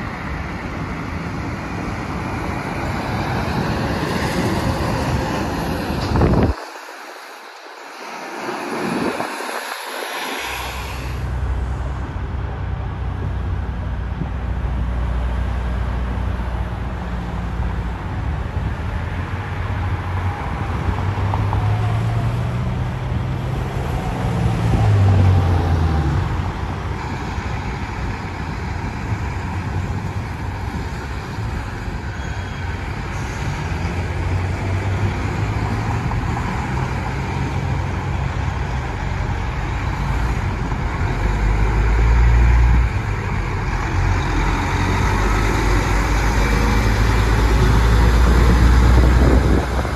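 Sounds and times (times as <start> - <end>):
cars passing: 0.0 - 49.9
truck diesel engines rumbling: 10.4 - 49.9.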